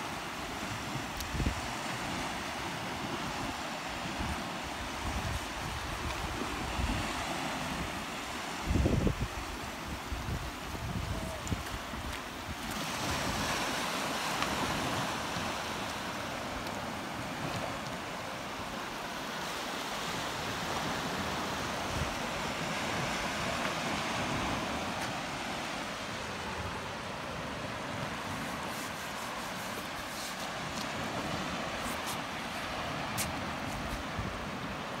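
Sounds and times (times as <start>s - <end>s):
surf washing onto beach: 0.0s - 35.0s
wind on microphone: 0.6s - 18.1s.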